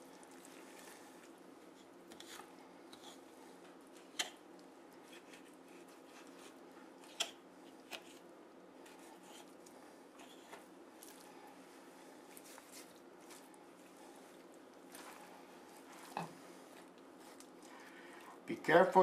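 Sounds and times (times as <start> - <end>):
wet squishing of meat: 0.0 - 1.4, 10.9 - 11.5, 12.2 - 17.8
low steady hum: 0.0 - 19.0.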